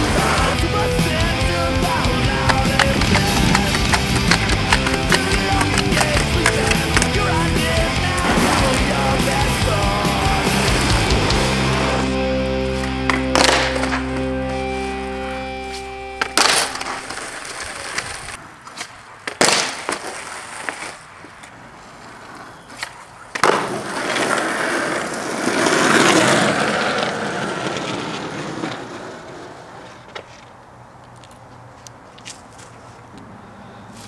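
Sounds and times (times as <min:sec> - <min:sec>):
skateboard clacks: 0:00.0 - 0:11.5, 0:12.8 - 0:14.1, 0:22.2 - 0:30.6
skateboard wheels rolling: 0:00.0 - 0:33.2.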